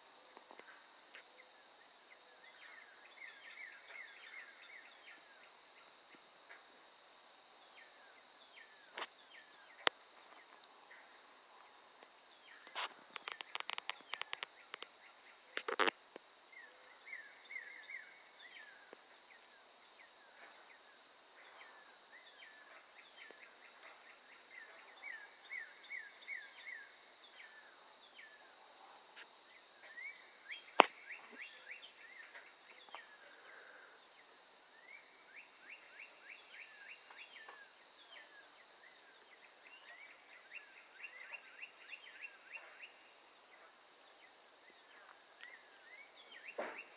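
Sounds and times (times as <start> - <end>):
crickets chirping: 0.0 - 46.9
crackly clicks: 12.7 - 14.9, 15.6 - 16.0.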